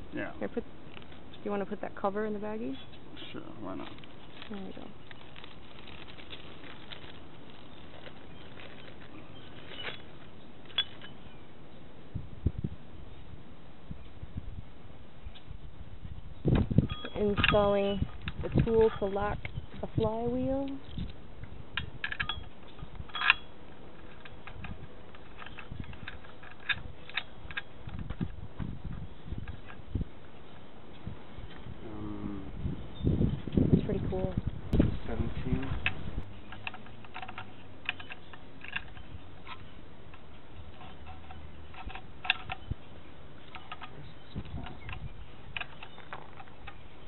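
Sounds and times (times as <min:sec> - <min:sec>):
small metal clicks and clinks: 0:16.9 - 0:19.3, 0:21.8 - 0:28.0, 0:35.8 - 0:42.7.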